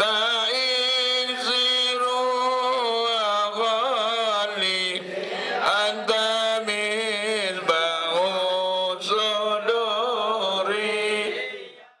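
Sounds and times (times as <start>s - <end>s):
person chanting a melody: 5.6s - 11.9s.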